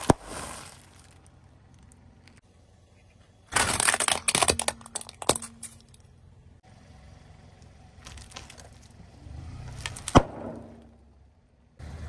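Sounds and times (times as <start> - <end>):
plastic toy cracking under tyre: 3.5 - 5.6, 9.8 - 10.8.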